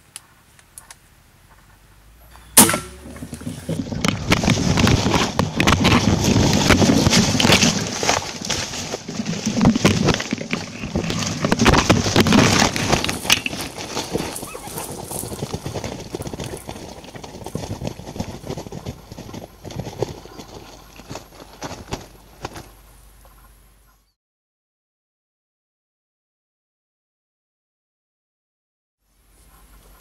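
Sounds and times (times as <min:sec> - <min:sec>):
leaves and twigs crackling: 0:02.3 - 0:23.5.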